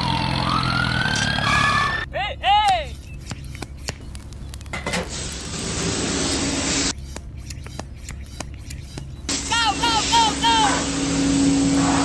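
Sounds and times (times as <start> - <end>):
water spray hiss: 5.0 - 6.9, 9.3 - 12.0.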